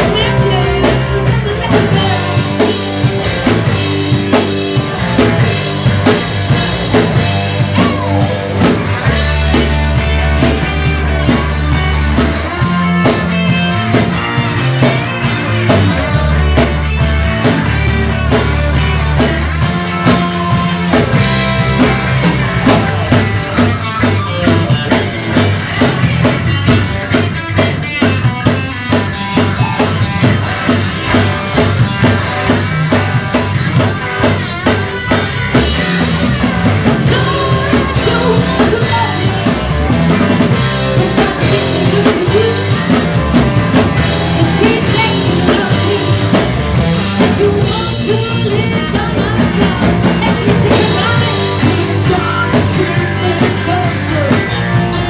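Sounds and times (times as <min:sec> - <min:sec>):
woman singing: 0:00.0 - 0:02.8, 0:36.9 - 0:39.6, 0:40.8 - 0:43.0, 0:44.4 - 0:46.4, 0:47.2 - 0:55.0
rock band playing: 0:00.0 - 0:55.0.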